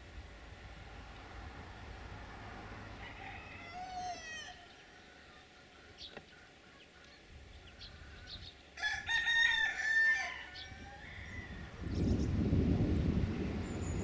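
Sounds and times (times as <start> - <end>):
rooster crowing: 2.7 - 5.4, 8.2 - 11.9
chickens calling: 2.7 - 12.4.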